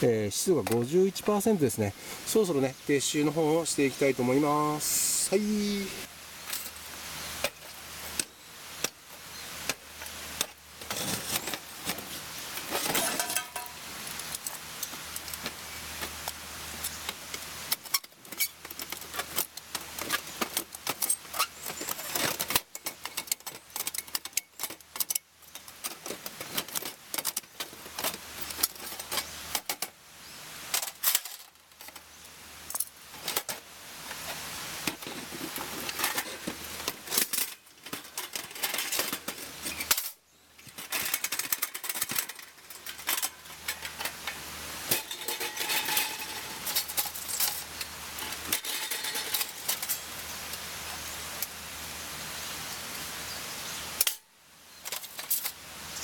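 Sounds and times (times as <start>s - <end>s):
metal parts clinking and rattling: 10.4s - 29.9s, 30.7s - 32.0s, 34.2s - 50.1s, 54.8s - 55.6s.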